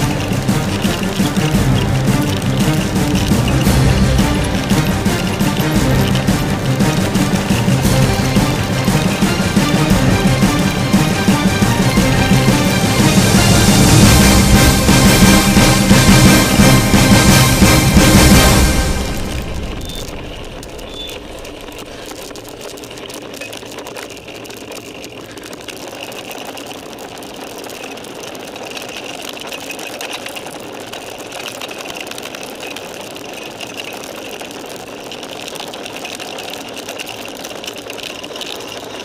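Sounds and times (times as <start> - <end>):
tyre noise: 0.0 - 15.6
mountain bike rattling: 0.0 - 39.0.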